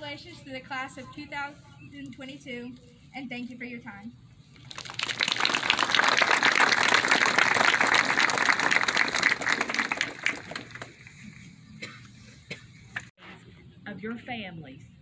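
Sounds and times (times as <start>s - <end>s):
crowd applauding: 4.6s - 11.1s.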